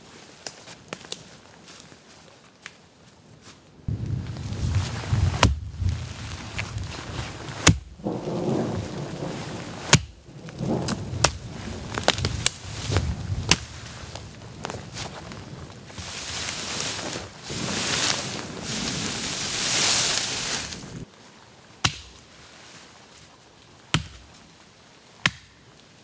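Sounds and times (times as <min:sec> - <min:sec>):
branches rustling: 0:00.0 - 0:26.0
wind rumble on microphone: 0:03.9 - 0:21.1
axe chopping wood: 0:07.6 - 0:07.9, 0:09.9 - 0:10.2, 0:21.8 - 0:22.2, 0:23.9 - 0:24.3, 0:25.2 - 0:25.6.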